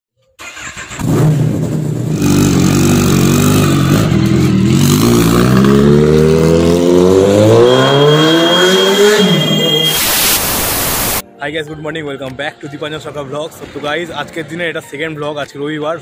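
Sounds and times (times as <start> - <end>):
motorcycle engine revving: 0.5 - 11.2.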